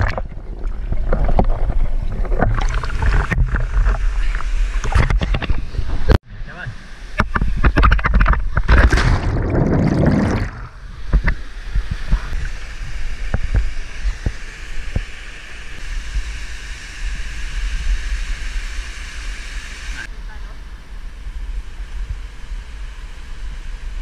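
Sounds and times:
knocks in water: 7.7s - 10.6s.

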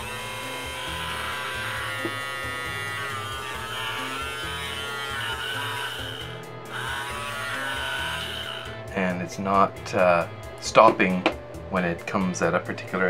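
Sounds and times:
electric beard trimmer buzzing: 0.0s - 11.6s.

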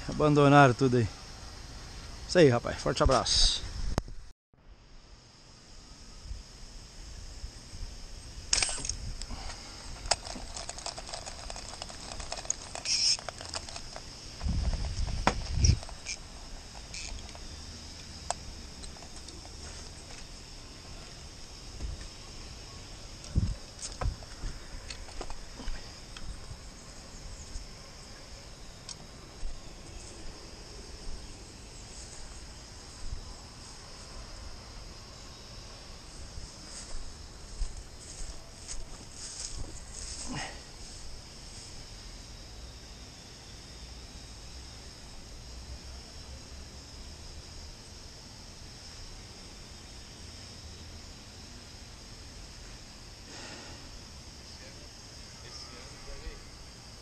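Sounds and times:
insects buzzing: 0.0s - 57.0s.

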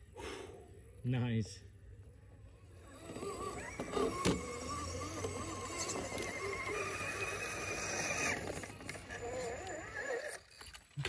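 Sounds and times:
electric motor whining: 2.6s - 10.9s.

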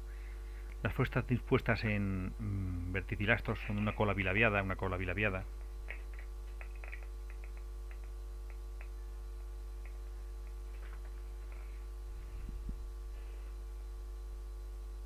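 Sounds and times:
steady low hum: 0.0s - 15.0s
faint clicks: 5.6s - 9.0s.

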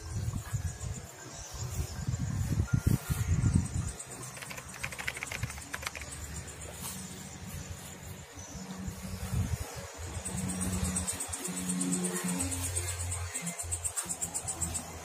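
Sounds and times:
insects chirping: 0.0s - 15.0s
rapid clicks: 4.2s - 6.4s.

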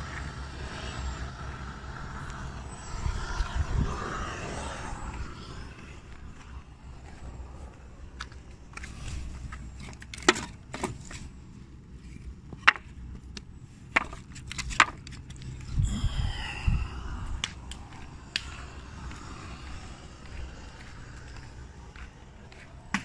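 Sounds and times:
wood handling noise: 8.8s - 11.2s, 12.0s - 15.4s
wooden clacks of timber: 12.6s - 12.9s.

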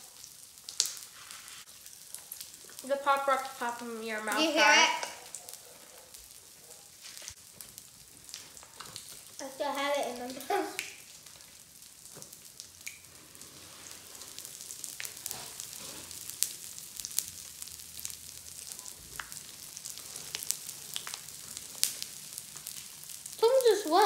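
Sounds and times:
candy crackling in slime: 7.0s - 24.0s.

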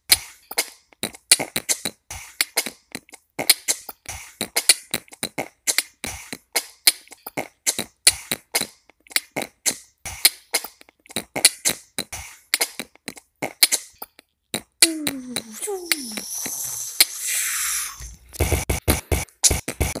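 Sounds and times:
person beatboxing: 5.3s - 6.5s, 14.8s - 20.0s.

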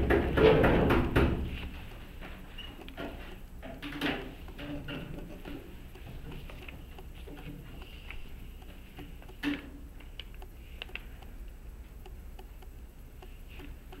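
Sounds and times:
low room hum: 0.0s - 14.0s
papers and pen clicks and taps: 3.9s - 11.3s.

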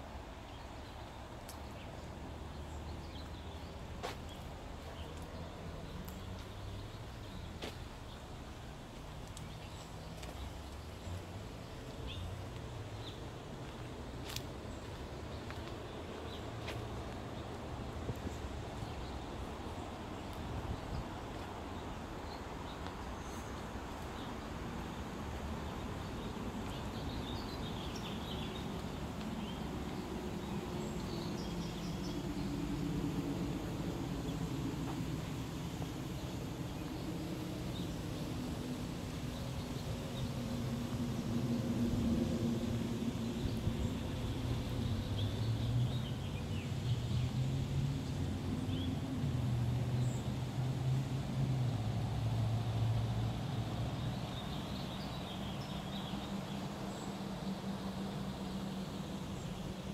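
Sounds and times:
distant road traffic rumble: 0.0s - 59.9s
steady background noise: 0.0s - 59.9s
birds chirping: 0.3s - 47.4s.

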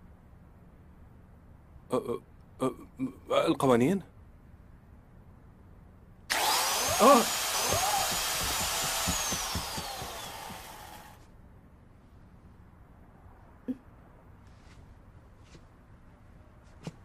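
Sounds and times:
chainsaw engine whining: 6.3s - 11.2s.

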